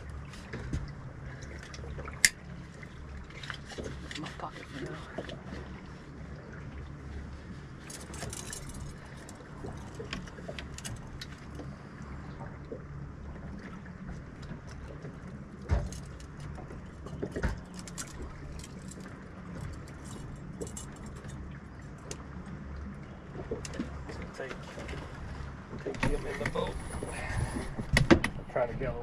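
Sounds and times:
boat motor humming: 0.0 - 29.0
gear clicking and clattering: 7.8 - 11.3.

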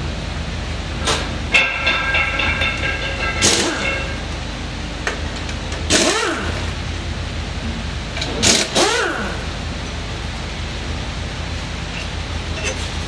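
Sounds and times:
steady low hum: 0.0 - 8.4
pneumatic wrench bursts: 8.3 - 9.4.

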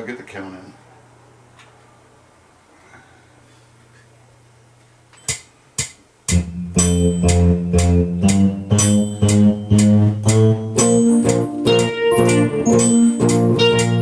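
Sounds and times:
sharp count-in clicks: 5.2 - 14.0
band playing a song: 6.3 - 14.0.

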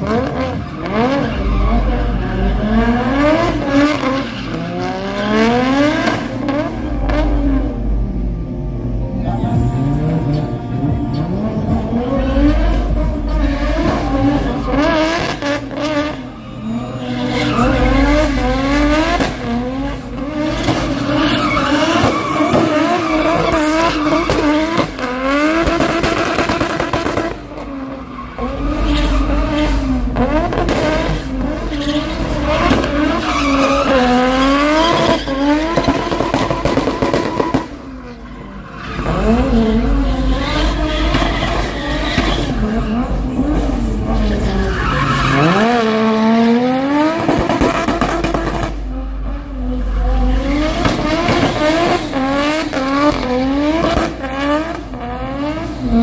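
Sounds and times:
car engine revving hard: 0.0 - 8.8, 9.5 - 56.0
tyres screeching: 11.1 - 26.8, 27.6 - 46.6.

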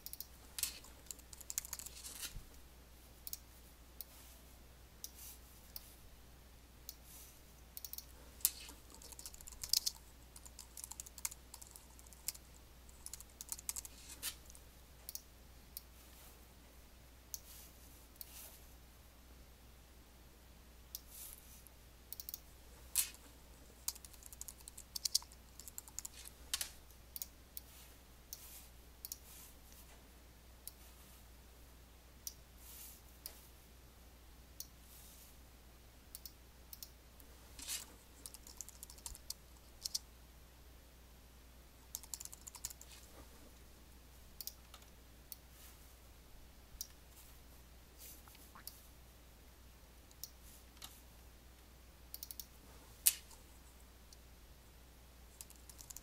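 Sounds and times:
keyboard typing: 0.0 - 2.3, 7.8 - 15.3, 22.1 - 27.3, 37.6 - 40.0, 41.9 - 43.1, 55.4 - 56.0
mouse clicking: 0.0 - 2.3, 3.2 - 4.2, 7.8 - 15.9, 22.1 - 27.7, 28.3 - 29.3, 36.1 - 37.0, 37.6 - 40.0, 41.9 - 43.1, 44.4 - 45.4, 50.1 - 51.0, 52.1 - 53.4, 55.4 - 56.0
faint low hum: 0.0 - 56.0.

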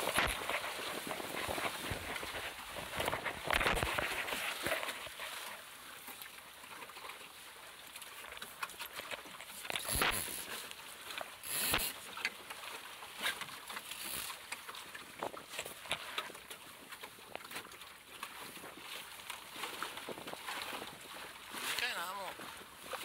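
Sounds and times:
water lapping against hull: 0.0 - 23.0.

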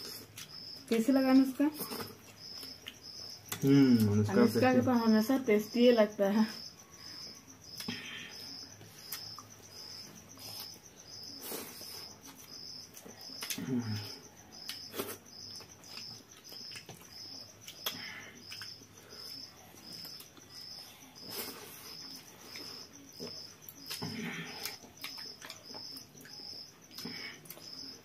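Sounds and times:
cricket chirping: 0.0 - 28.0
sharp clicks from eating: 14.6 - 18.8.

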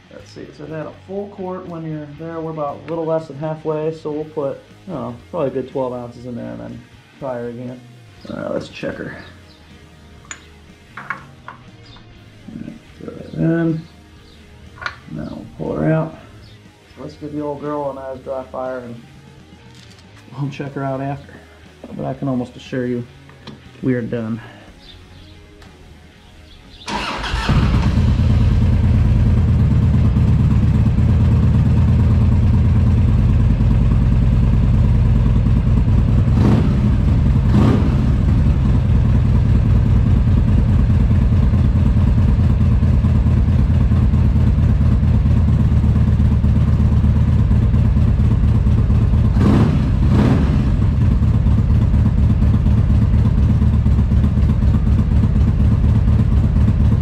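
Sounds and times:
motorcycle engine idling: 26.8 - 57.0.

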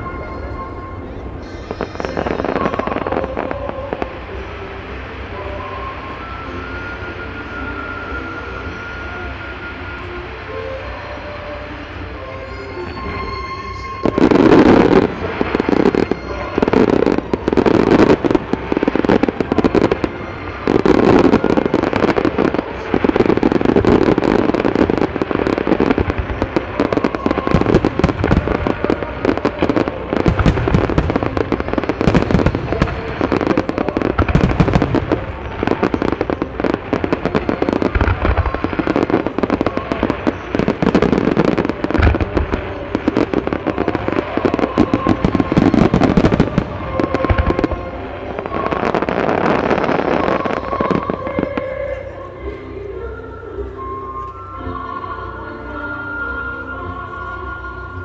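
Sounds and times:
fireworks launching and bursting: 0.0 - 52.0
deep firework booms: 14.1 - 51.1.

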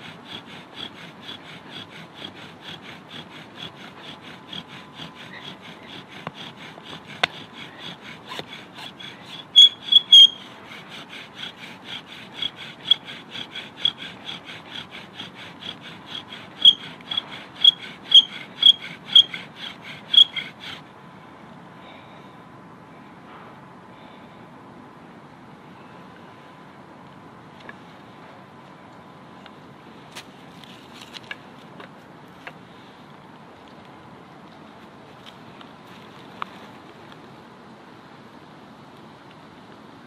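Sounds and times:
bow drill spindle grinding and squeaking: 0.7 - 10.6, 12.2 - 14.2, 15.7 - 20.8.

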